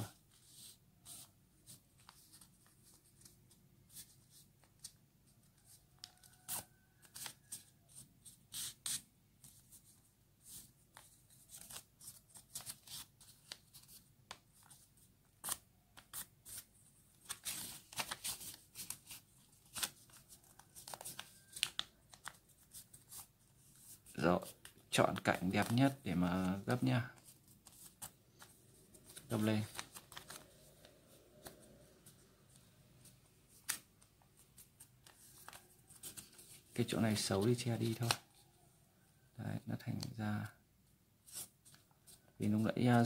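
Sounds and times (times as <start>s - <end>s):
paper rustling and crinkling: 9.4s - 32.2s, 33.1s - 38.5s.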